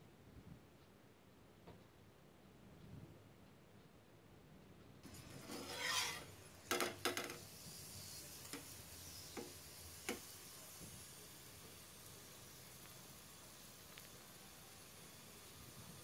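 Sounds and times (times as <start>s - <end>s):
metal spatula scraping iron pan: 5.0s - 7.4s
faint sizzle: 5.0s - 16.0s.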